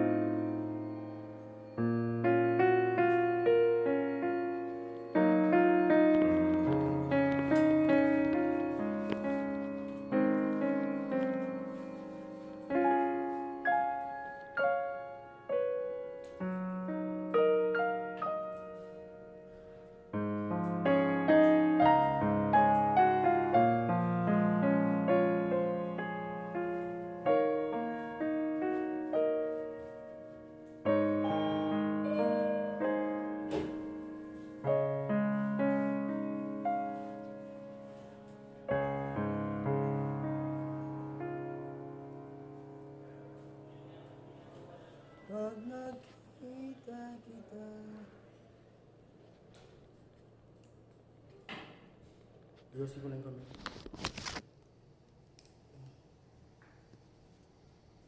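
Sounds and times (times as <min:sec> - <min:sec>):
slow solo piano: 0:00.0 - 0:45.4.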